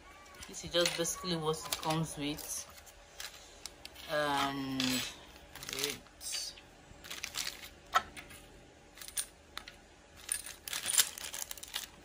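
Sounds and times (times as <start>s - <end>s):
small parts clicking and clinking: 0.2s - 2.5s, 3.2s - 8.0s, 9.0s - 12.0s
plastic bag rustling: 0.2s - 6.1s, 7.0s - 7.8s, 10.2s - 12.0s.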